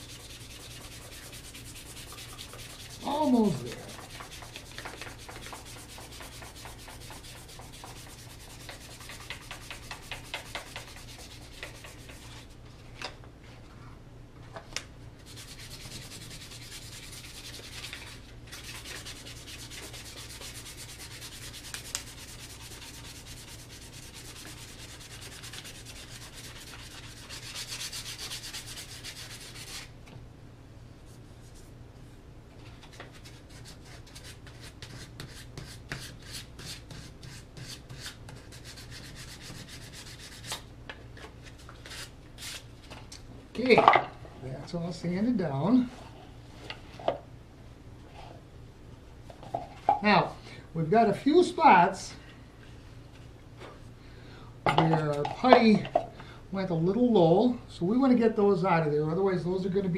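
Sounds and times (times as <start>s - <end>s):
sandpaper rubbing on wood: 0.0s - 12.5s, 15.2s - 29.9s, 33.2s - 40.6s.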